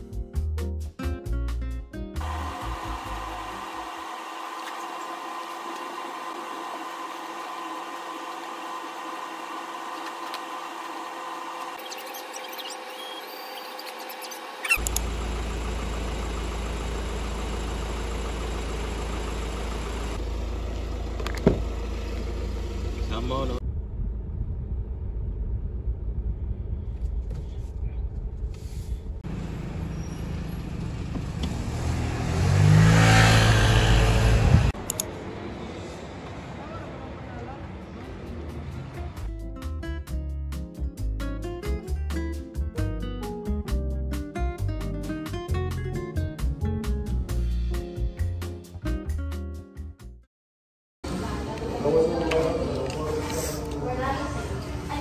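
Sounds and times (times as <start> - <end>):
vehicle engine hum: 2.2 - 39.4.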